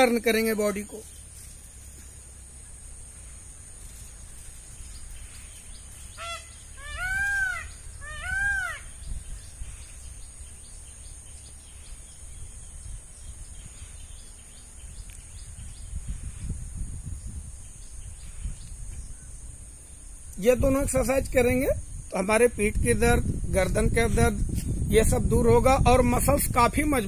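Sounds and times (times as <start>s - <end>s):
bird calling: 0.9s - 16.0s
high insect buzz: 0.9s - 22.3s.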